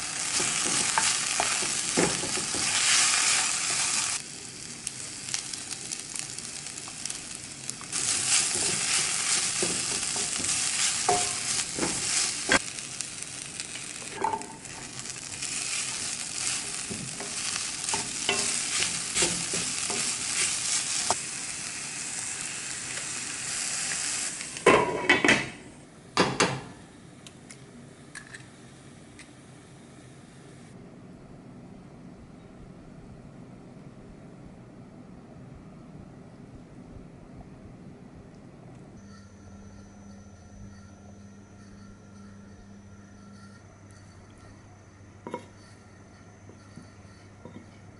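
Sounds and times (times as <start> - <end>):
food sizzling in a frying pan: 0.0 - 25.7
wooden spatula scraping a pan: 8.0 - 12.6.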